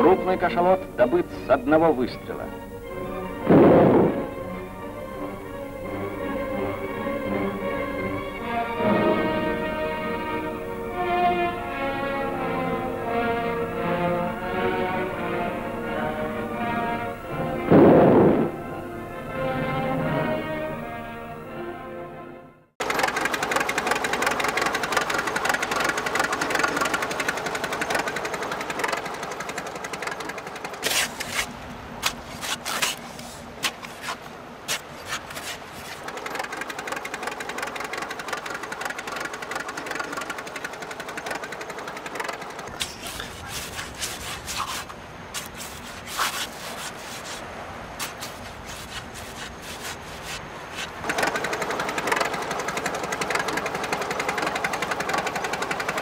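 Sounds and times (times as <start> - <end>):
steady noisy rumble: 0.0 - 21.7, 22.8 - 56.0
machinery clattering: 22.8 - 32.2, 35.1 - 46.4, 50.7 - 56.0.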